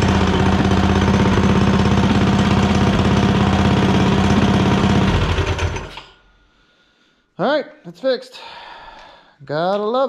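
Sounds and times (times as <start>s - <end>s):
small engine idling: 0.0s - 6.0s.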